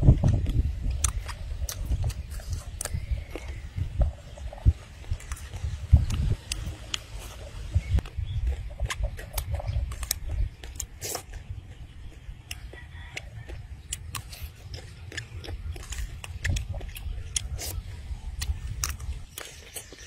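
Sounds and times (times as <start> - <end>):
wet lip smacks and chewing: 0.2 - 20.0.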